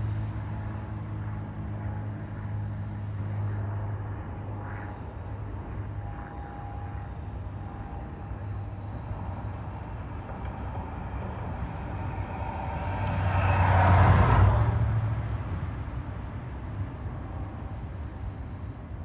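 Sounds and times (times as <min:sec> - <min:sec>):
low engine hum: 0:00.0 - 0:19.0
vehicle passing by: 0:10.6 - 0:16.6.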